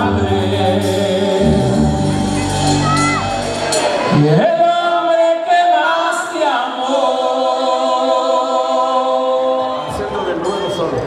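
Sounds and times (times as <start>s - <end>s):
voices singing unaccompanied: 0.0s - 3.0s, 5.0s - 10.3s.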